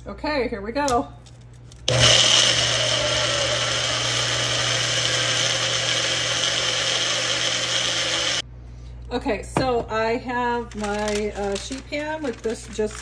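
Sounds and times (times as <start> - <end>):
blender motor whirring: 1.9 - 8.4.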